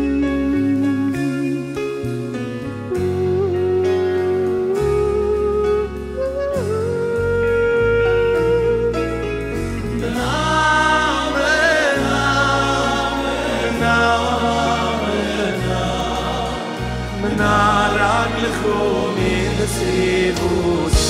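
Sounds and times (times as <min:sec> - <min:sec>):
bass: 0:00.0 - 0:21.0
drums: 0:00.0 - 0:21.0
keyboard: 0:00.0 - 0:21.0
male choir singing: 0:10.0 - 0:21.0.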